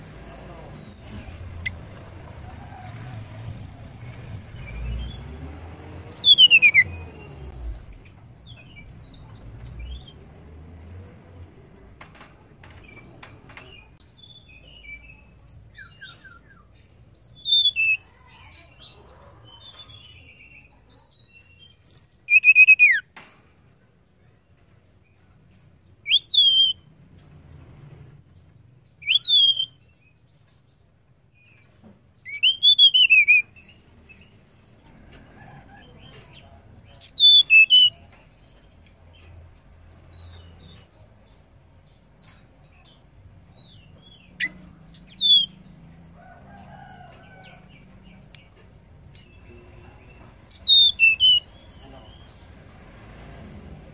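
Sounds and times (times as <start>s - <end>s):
soft bird chirps: 4.1s - 10.2s, 12.9s - 23.1s, 35.4s - 45.7s, 46.7s - 52.5s
bird whistling sliding notes: 6.0s - 7.0s.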